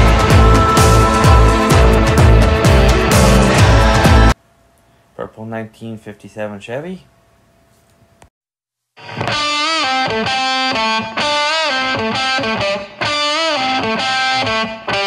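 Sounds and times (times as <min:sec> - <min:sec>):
rock music with distorted electric guitar: 0:00.0 - 0:04.4, 0:09.0 - 0:15.0.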